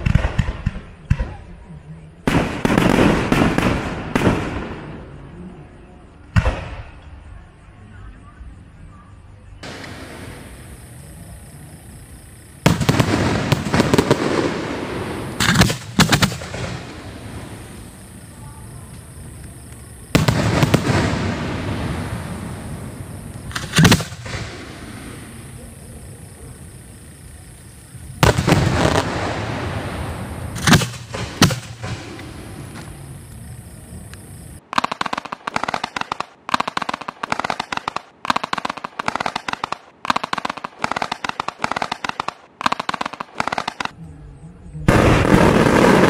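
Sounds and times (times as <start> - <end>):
rapid firework pops and bangs: 0.0 - 1.4, 2.3 - 4.8, 12.6 - 17.8, 19.0 - 22.5, 23.4 - 24.7, 28.2 - 29.4, 30.5 - 33.0, 34.6 - 44.0.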